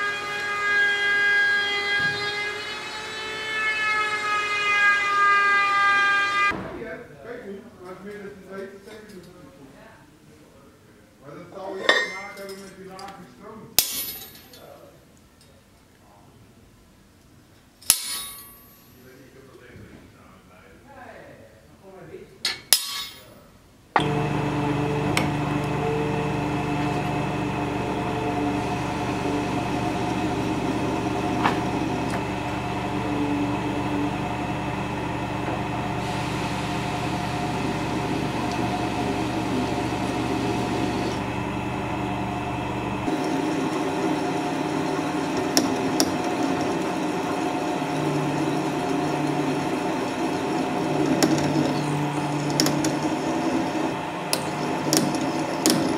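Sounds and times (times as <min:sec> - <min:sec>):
drill press drilling metal: 0:24.0 - 0:55.9.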